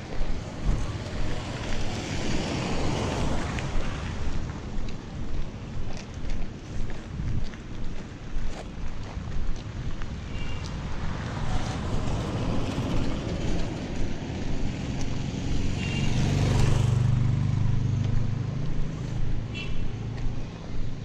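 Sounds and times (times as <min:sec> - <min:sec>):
car passing: 0:00.0 - 0:05.8, 0:09.9 - 0:21.0
vehicle engine droning past: 0:11.0 - 0:19.5.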